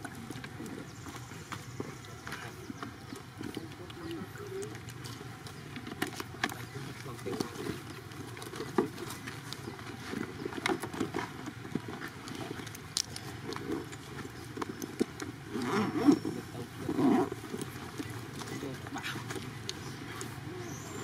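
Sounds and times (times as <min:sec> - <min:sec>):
monkeys rustling on dry ground: 0:00.0 - 0:21.0.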